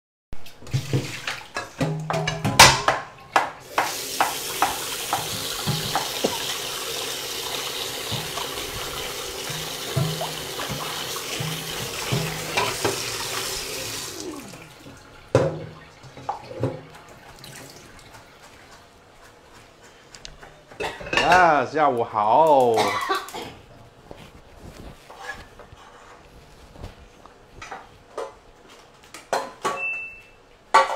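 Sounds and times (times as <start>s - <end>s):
tap running into a sink: 0.4s - 17.8s
kitchenware knocking and clattering: 0.7s - 6.6s, 8.0s - 13.2s, 15.3s - 17.0s, 20.4s - 21.6s, 29.3s - 29.9s.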